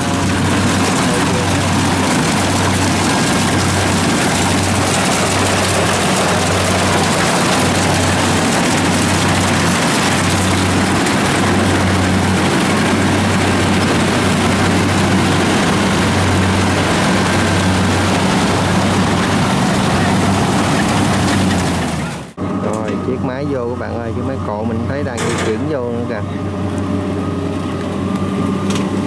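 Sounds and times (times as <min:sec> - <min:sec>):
mechanical rush: 0:00.0 - 0:22.4
combine harvester engine hum: 0:00.0 - 0:29.0.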